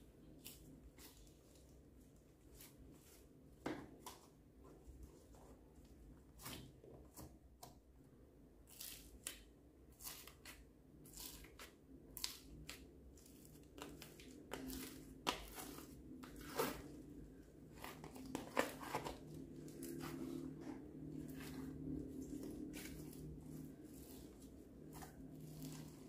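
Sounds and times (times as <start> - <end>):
slime crackling and crunching: 21.2 - 26.0.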